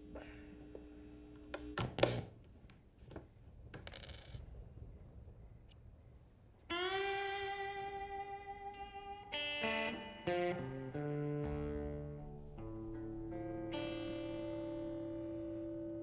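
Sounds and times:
amplifier hum: 0:00.0 - 0:03.0, 0:06.8 - 0:16.0
faint clicks: 0:05.6 - 0:05.9
electric guitar note ringing: 0:06.7 - 0:16.0.

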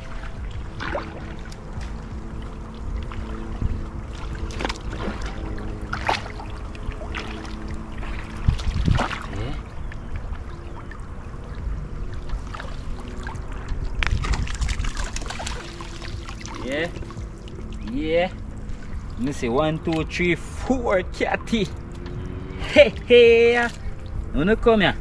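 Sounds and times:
faint steady hum: 0:00.0 - 0:25.0
water splashing and sloshing: 0:00.0 - 0:25.0.

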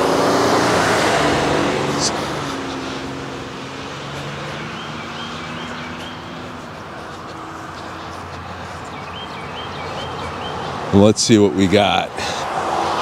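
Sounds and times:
pickup truck driving past: 0:00.0 - 0:11.0.

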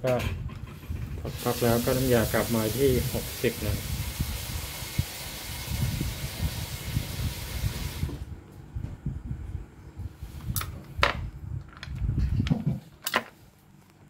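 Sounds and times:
low rumbling handling noise: 0:00.0 - 0:01.3, 0:08.2 - 0:14.0
steady gas hiss: 0:01.1 - 0:08.3.

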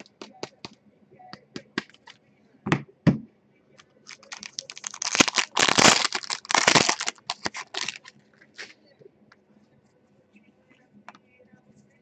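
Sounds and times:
foil wrapper crinkling and tearing: 0:04.1 - 0:08.7.

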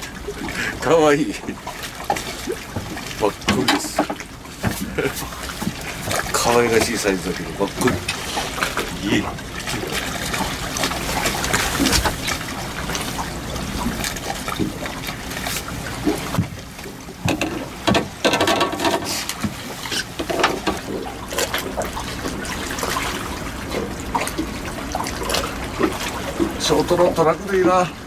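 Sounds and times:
water lapping against boat hull: 0:00.0 - 0:28.0
small clicks and knocks: 0:17.3 - 0:19.4.

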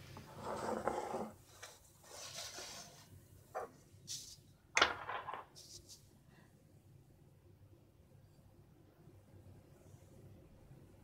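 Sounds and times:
glass bowl scraping on marble: 0:00.3 - 0:01.4.

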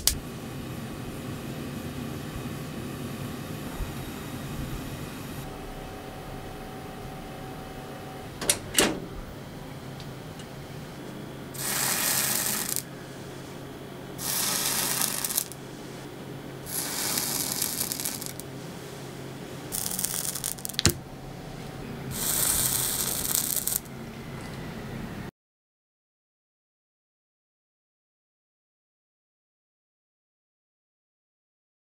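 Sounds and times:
hot iron sizzling: 0:00.0 - 0:08.4, 0:11.4 - 0:24.0.

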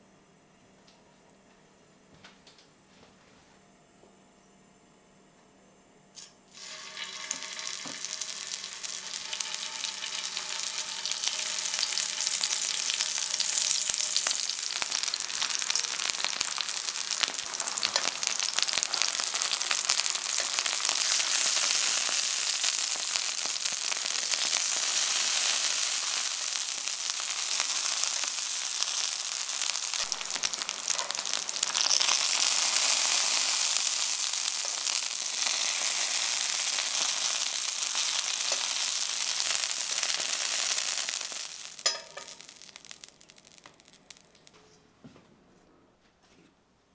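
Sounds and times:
vegetable slices sizzling in oil: 0:06.2 - 0:44.5.

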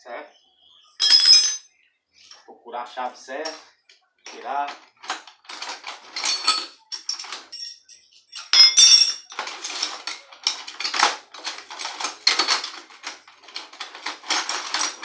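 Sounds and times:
ringing metal clank: 0:01.0 - 0:01.6, 0:06.2 - 0:09.3
metal tools clattering in bucket: 0:01.0 - 0:01.7, 0:04.3 - 0:15.0.

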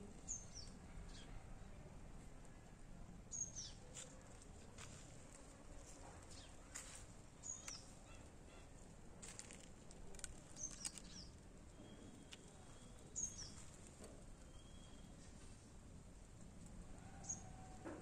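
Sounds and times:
faint outdoor ambience: 0:00.0 - 0:18.0
small clicks: 0:09.2 - 0:11.3.

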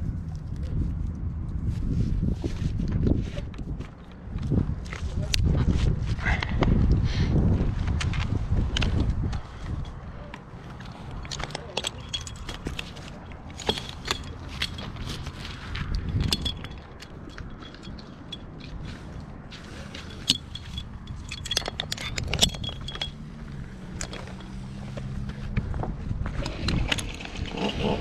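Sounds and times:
climbing hardware clinking: 0:08.0 - 0:28.0
chainsaw starting up: 0:27.4 - 0:28.0.

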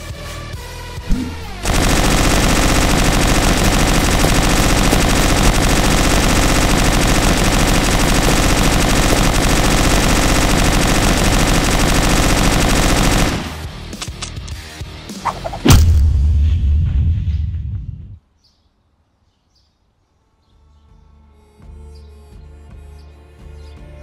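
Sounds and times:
submachine gun automatic fire: 0:01.1 - 0:13.7.

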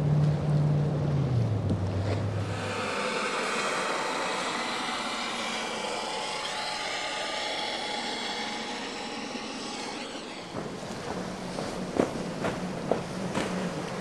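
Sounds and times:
helicopter turbine whine: 0:02.3 - 0:12.3
helicopter rotor noise: 0:02.4 - 0:11.8.

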